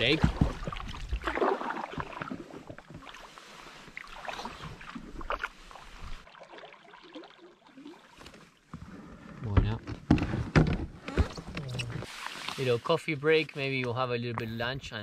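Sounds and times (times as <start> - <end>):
canoe paddles splashing water: 0.0 - 9.2, 11.2 - 13.8.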